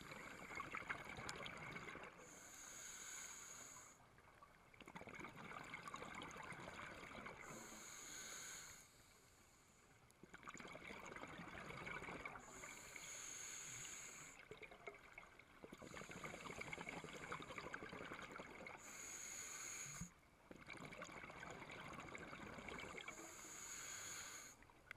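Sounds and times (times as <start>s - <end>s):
scuba regulator hissing breaths: 2.2s - 4.0s, 7.4s - 9.8s, 12.4s - 14.4s, 18.8s - 20.2s, 23.0s - 24.6s.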